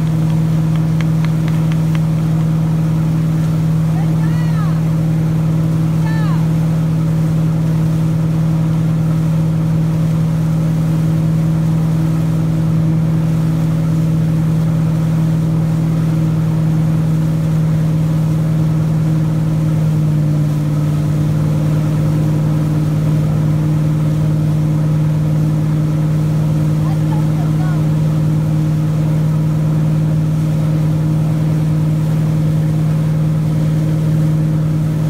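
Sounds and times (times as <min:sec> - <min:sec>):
boat engine drone: 0:00.0 - 0:35.0
water rushing: 0:00.0 - 0:35.0.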